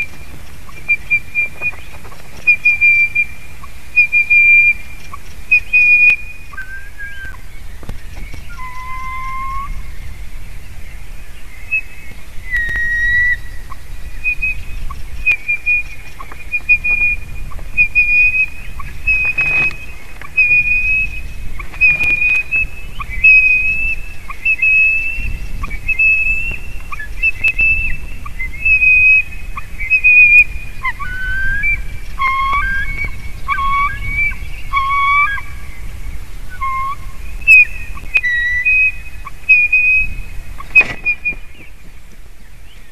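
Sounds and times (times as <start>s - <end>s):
lower bird yelps: 8.2s - 10.0s, 11.7s - 35.9s, 36.5s - 41.8s
eagle yelping: 8.6s - 9.8s, 15.4s - 35.6s, 36.5s - 41.7s.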